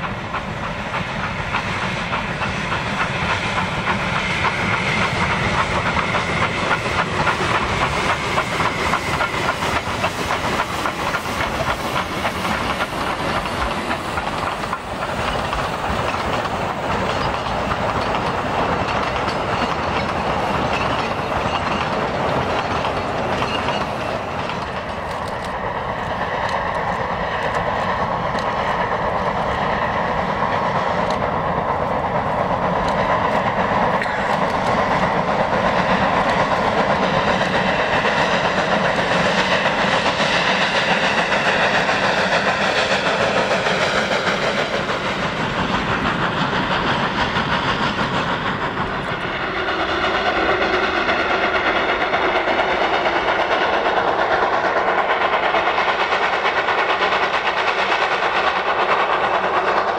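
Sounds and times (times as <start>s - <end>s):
wagons rolling on rails: 0.0s - 29.5s, 32.2s - 49.3s
steam locomotive working: 0.0s - 59.9s.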